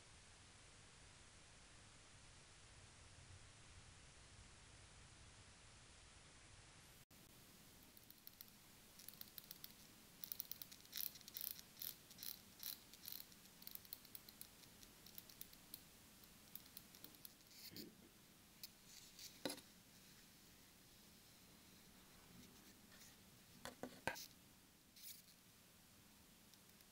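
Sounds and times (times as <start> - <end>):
watch bezel clicks: 7.9 - 15.8.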